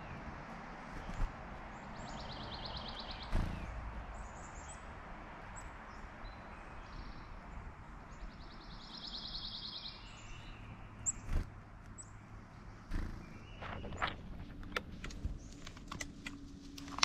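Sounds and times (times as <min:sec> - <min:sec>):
outdoor background noise: 0:00.0 - 0:17.0.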